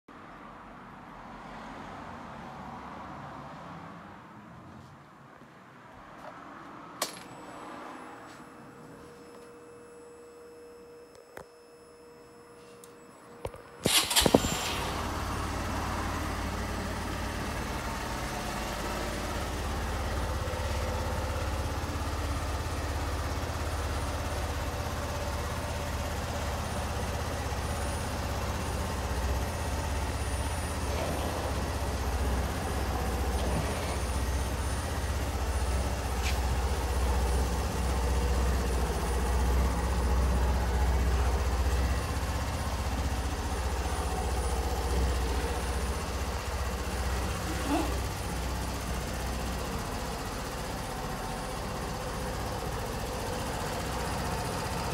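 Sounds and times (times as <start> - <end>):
scooter engine starting and idling: 12.6 - 54.9.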